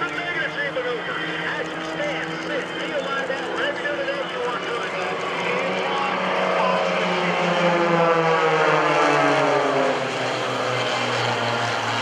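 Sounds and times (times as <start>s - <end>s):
propeller planes flying past: 0.0s - 12.0s.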